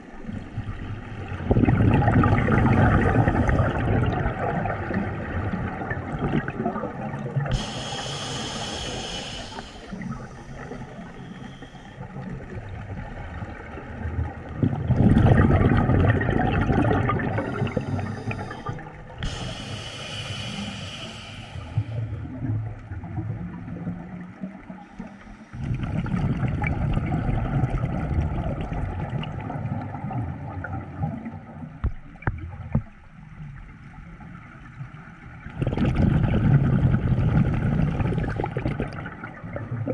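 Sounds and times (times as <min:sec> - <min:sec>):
gurgling exhaled bubbles: 0:00.0 - 0:31.6, 0:35.4 - 0:39.9
hissing regulator inhalations: 0:07.5 - 0:12.0, 0:17.2 - 0:22.2.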